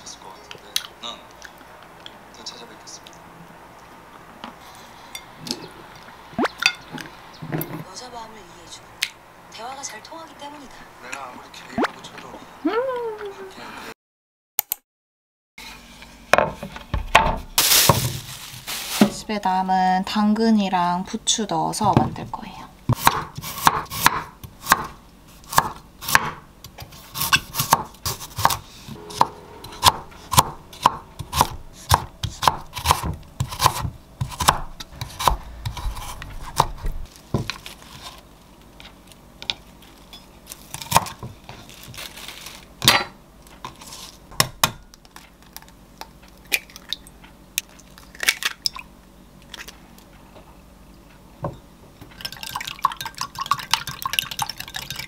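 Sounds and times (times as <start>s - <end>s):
knife chopping on wooden board: 22.9s - 37.6s.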